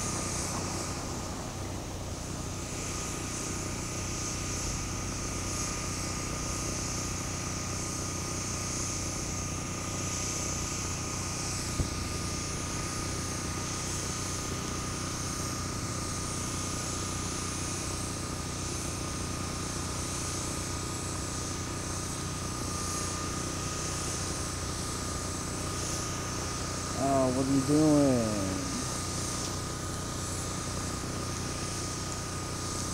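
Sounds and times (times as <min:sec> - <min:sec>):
high whine: 0:26.8 - 0:29.6.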